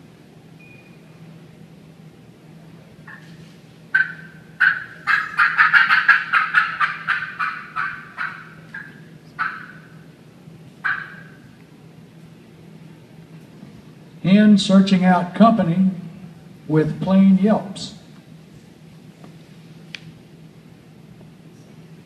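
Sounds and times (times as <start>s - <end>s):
turkey call yelps and cackling: 3.9s - 10.0s, 10.8s - 11.5s.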